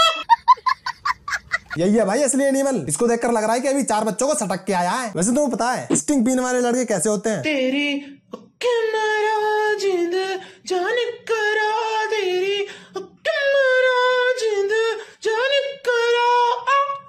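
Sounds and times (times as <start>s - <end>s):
person singing unaccompanied: 7.5s - 17.0s.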